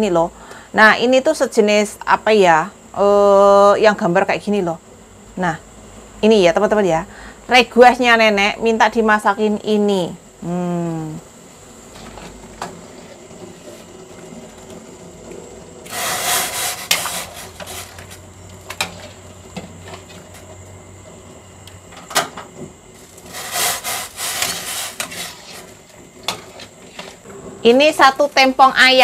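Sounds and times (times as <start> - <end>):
metal ladle scraping a wok: 15.8 - 19.2, 23.1 - 27.2.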